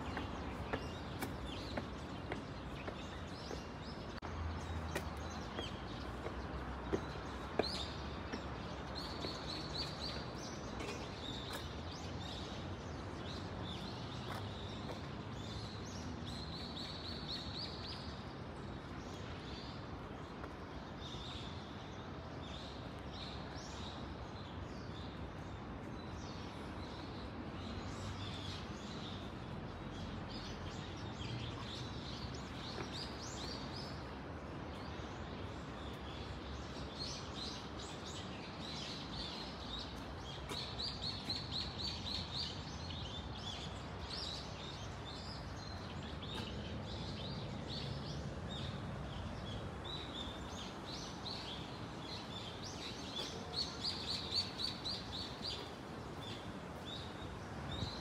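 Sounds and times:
footsteps on stone: 0:00.0 - 0:12.0
small birds chirping: 0:00.0 - 0:58.0.

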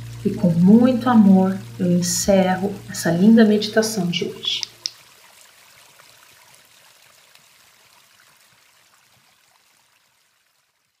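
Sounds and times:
stream trickling: 0:00.0 - 0:11.0.

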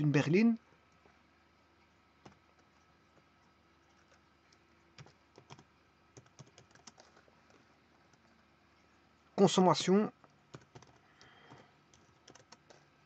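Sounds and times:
faint keyboard keystrokes: 0:02.2 - 0:08.5, 0:09.8 - 0:12.9.

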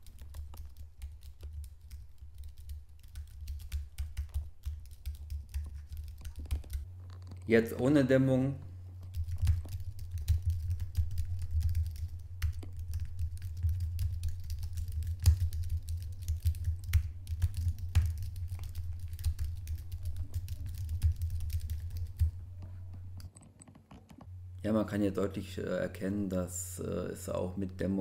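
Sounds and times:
typing on computer keyboard: 0:00.0 - 0:06.8, 0:09.0 - 0:22.4.

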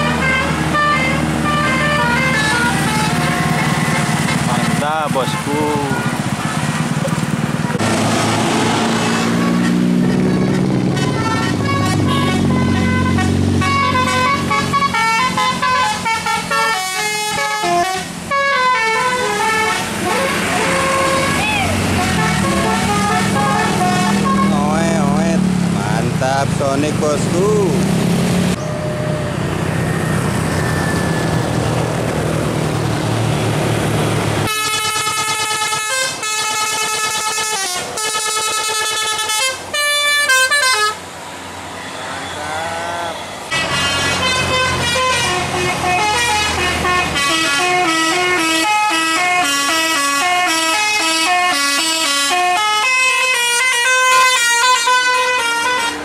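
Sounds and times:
melodic air horn tunes: 0:00.0 - 0:04.5, 0:09.2 - 0:25.4, 0:34.5 - 0:41.0, 0:43.3 - 0:56.0
bus engine and road noise: 0:00.0 - 0:56.0.

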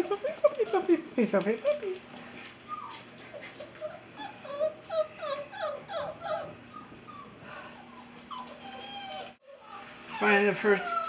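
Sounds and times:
puppies crying: 0:00.0 - 0:01.0, 0:01.7 - 0:11.0.

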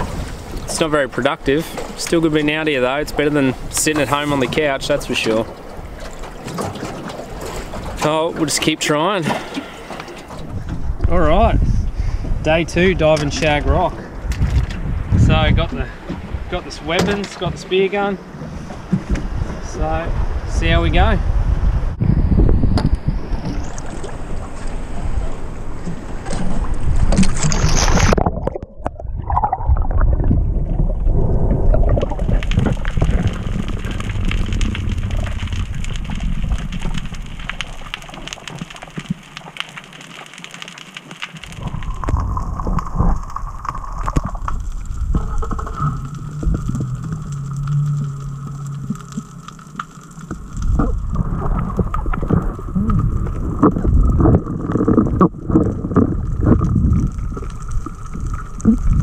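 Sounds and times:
underwater water rumble: 0:00.0 - 0:59.0
splash into water: 0:26.4 - 0:31.0
sharp underwater clicks: 0:31.7 - 0:59.0.

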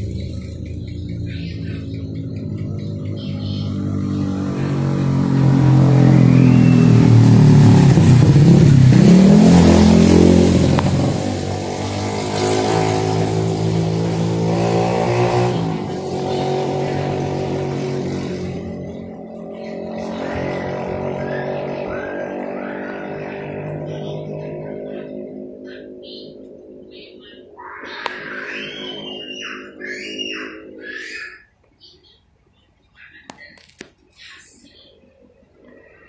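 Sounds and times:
vehicle engine passing by: 0:00.0 - 0:31.0.

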